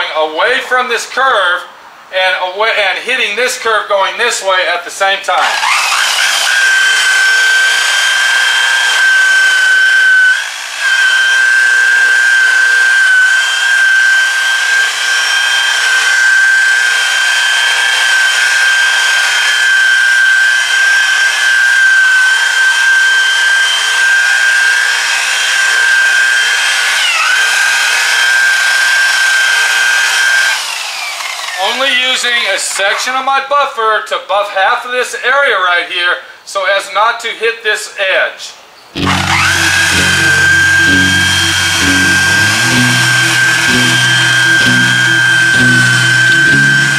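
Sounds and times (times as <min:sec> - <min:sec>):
rotary polisher motor whine: 0:05.4 - 0:33.0, 0:39.0 - 0:46.9.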